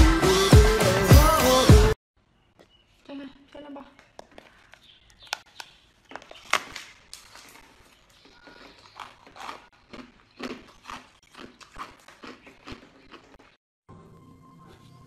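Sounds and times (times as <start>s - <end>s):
ice crunching between teeth: 6.1s - 13.6s.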